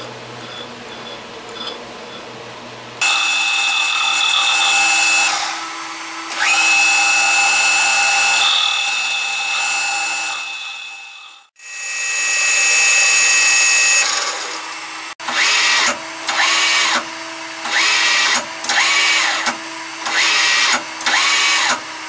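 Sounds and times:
lathe tool cutting ringing whine: 3.0s - 5.8s
metal lathe humming: 3.0s - 15.7s.

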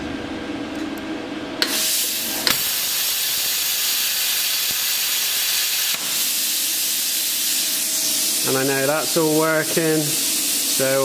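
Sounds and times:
plasma torch hissing: 1.6s - 11.0s.

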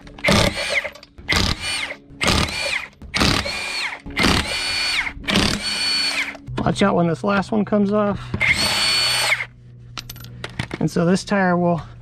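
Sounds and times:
impact wrench whirring: 0.2s - 6.4s, 8.4s - 9.5s.

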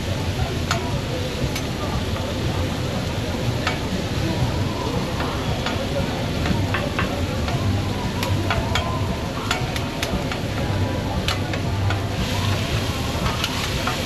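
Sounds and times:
food sizzling: 0.0s - 14.0s
utensils clicking and tapping: 0.6s - 0.9s, 3.6s - 3.9s, 5.2s - 14.0s.

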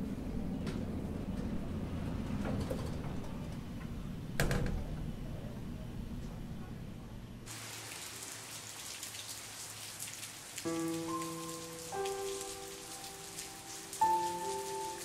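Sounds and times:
rain patter: 7.5s - 15.0s.

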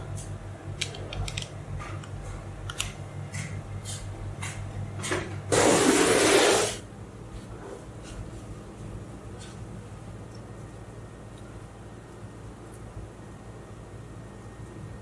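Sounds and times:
steady low hum: 0.0s - 15.0s
loud harsh noise: 5.5s - 6.8s.

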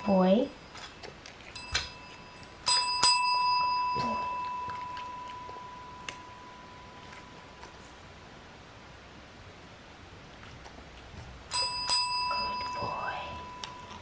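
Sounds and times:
desk service bell dinging: 1.6s - 7.4s, 11.5s - 14.0s.

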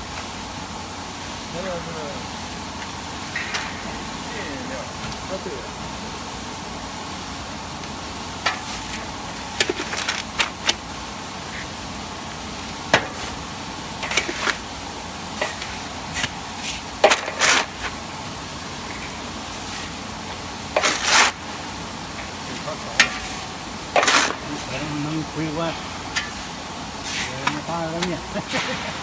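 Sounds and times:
grain roaster machine running: 0.0s - 29.0s
grains rattling in rotating drum: 7.5s - 29.0s.

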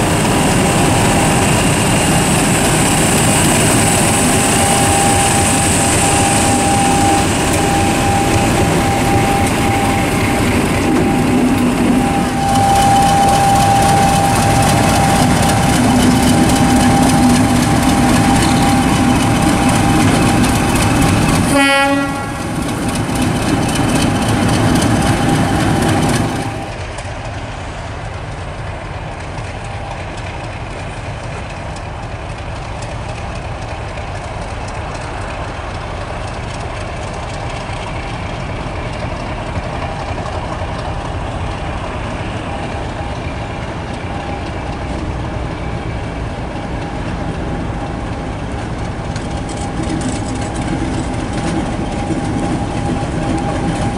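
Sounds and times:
constant whine: 0.0s - 53.9s
diesel locomotive engine running: 0.0s - 53.9s
locomotive horn blast: 4.5s - 22.6s.

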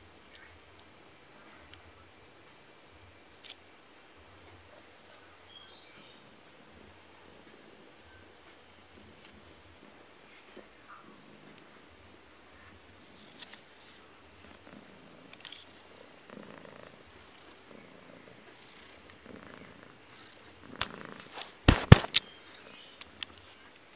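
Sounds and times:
cat purring: 0.0s - 23.6s
knocks against camera: 21.7s - 22.2s.

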